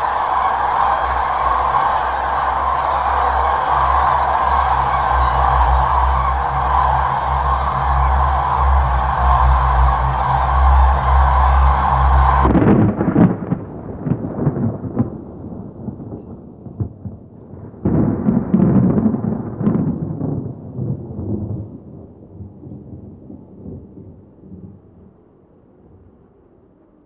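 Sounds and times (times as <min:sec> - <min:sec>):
music: 0:00.0 - 0:13.2
rolling thunder: 0:11.9 - 0:24.8.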